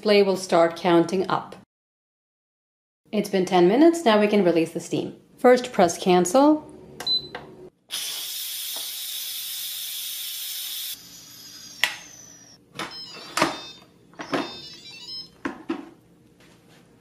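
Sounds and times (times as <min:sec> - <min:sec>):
steam valve hissing: 0:07.9 - 0:11.8.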